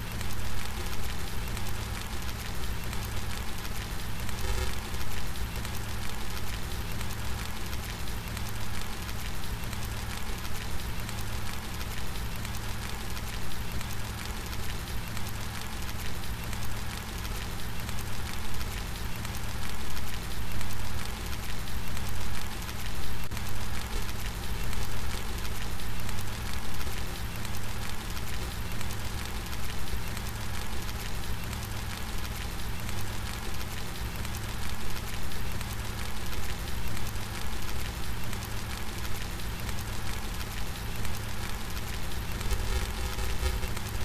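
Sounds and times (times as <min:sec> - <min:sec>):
steady rain falling: 0:00.0 - 0:44.0.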